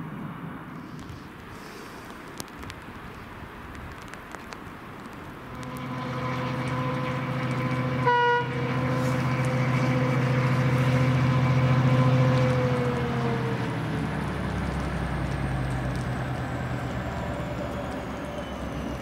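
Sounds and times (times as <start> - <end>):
diesel locomotive engine drone: 0.0 - 19.0
train horn toot: 5.5 - 13.2.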